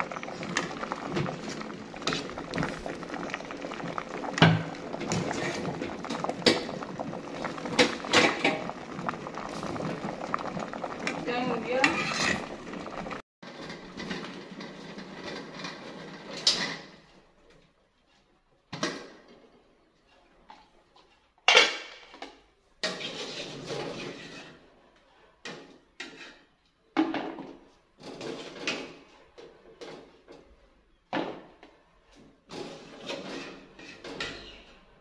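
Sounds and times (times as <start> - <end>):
water boiling in metal pot: 0.0 - 17.0, 22.8 - 24.8, 32.5 - 35.0.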